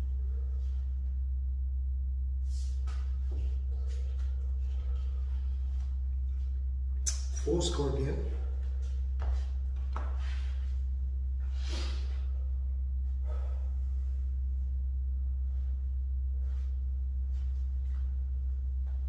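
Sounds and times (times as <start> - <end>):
low hum: 0.0 - 19.0
man breathing hard: 11.4 - 14.3.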